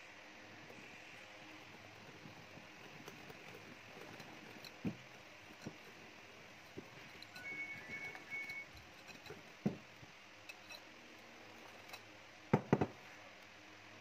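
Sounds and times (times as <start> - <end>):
whisk squeaking against glass bowl: 2.8 - 9.8
metal clinking on glass: 6.8 - 9.8.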